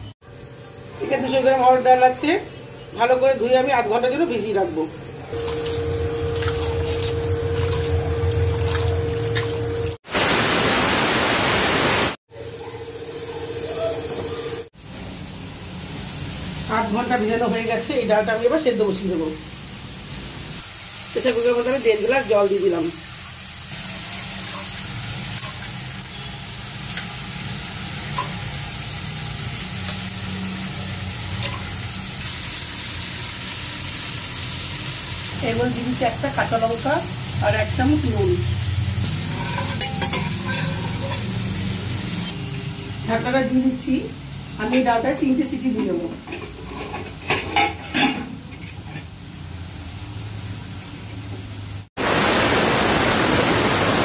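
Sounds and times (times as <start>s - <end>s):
tap water running into steel bowl: 5.4s - 9.8s.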